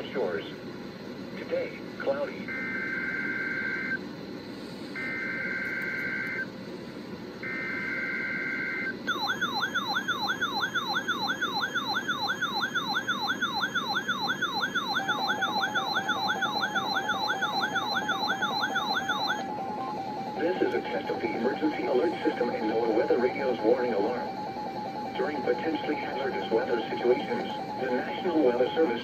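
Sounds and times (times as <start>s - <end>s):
steady alarm tone: 2.5s - 4.0s, 5.0s - 6.5s, 7.4s - 29.0s
rising sweep alert alarm: 7.4s - 29.0s.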